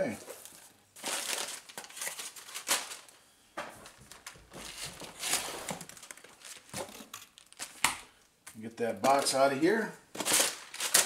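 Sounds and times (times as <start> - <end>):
packing paper crumpling: 0.3 - 3.2, 3.8 - 7.8, 10.2 - 11.0.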